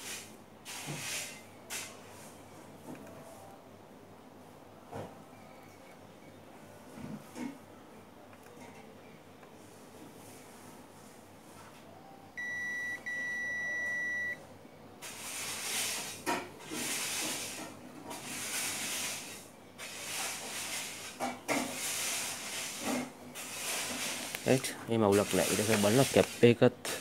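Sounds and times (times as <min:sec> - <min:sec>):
multimeter continuity beep: 0:12.4 - 0:14.4.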